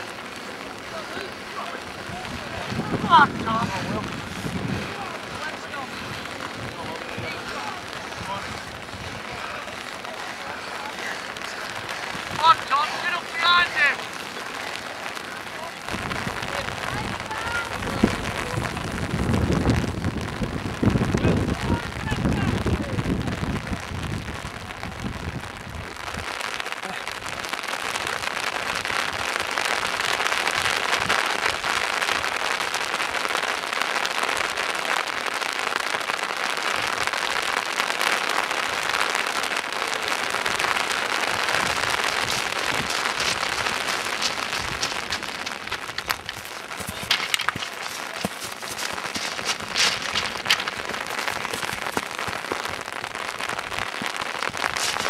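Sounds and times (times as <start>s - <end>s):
scree stones crunching underfoot: 40.4s - 55.0s
stones clattering: 42.1s - 52.6s.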